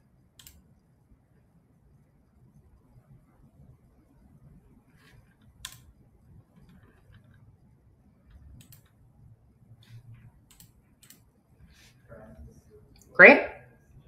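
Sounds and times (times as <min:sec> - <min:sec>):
low room hum: 0:00.0 - 0:14.0
faint clicks: 0:05.4 - 0:05.9, 0:08.3 - 0:09.0, 0:09.8 - 0:11.2.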